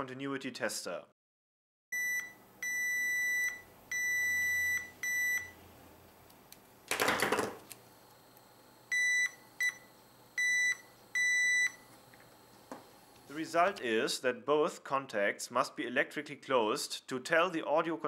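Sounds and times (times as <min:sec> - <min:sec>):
multimeter continuity beeps: 0:02.0 - 0:05.6, 0:08.9 - 0:11.9.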